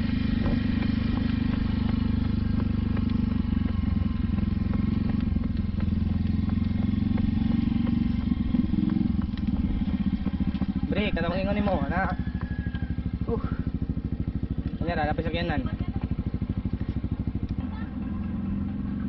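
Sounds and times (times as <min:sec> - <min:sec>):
small motorcycle engine running: 0:00.0 - 0:19.0.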